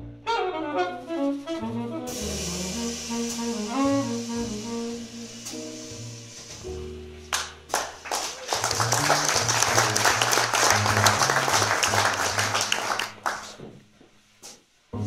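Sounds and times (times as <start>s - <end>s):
audience applauding: 7.3s - 13.6s.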